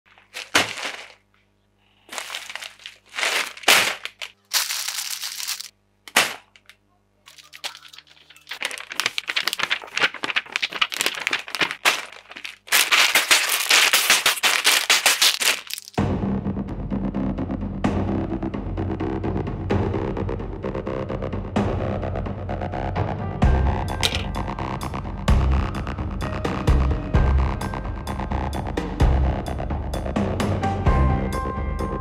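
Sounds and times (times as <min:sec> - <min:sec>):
plastic bricks shuffling in bags: 0:00.1 - 0:01.3, 0:01.9 - 0:05.7, 0:06.4 - 0:16.0, 0:24.0 - 0:24.3
crinkling plastic packaging: 0:00.1 - 0:16.0, 0:24.0 - 0:24.3.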